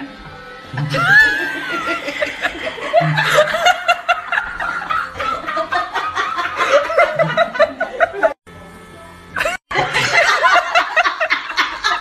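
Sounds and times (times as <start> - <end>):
person chuckling: 0.8 - 8.4.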